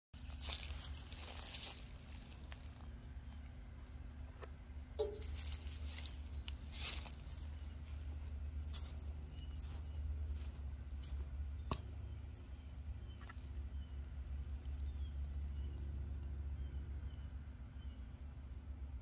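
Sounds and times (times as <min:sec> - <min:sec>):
bird chirping faintly: 0:05.0 - 0:18.8.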